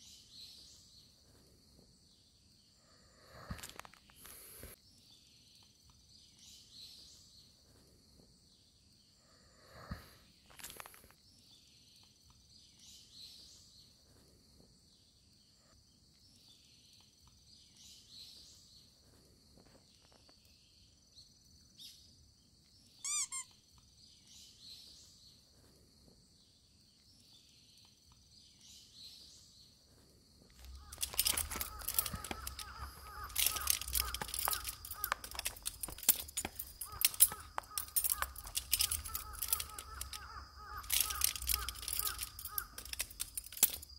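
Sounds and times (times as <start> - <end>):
soft bird calls: 22.8 - 25.9, 26.5 - 43.9
loud bird call: 30.6 - 43.8.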